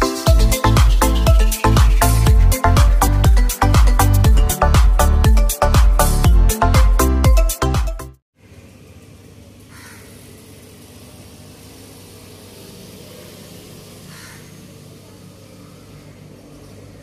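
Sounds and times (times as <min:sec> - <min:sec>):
faint hiss: 0:08.4 - 0:16.1
low street hum: 0:08.4 - 0:17.0.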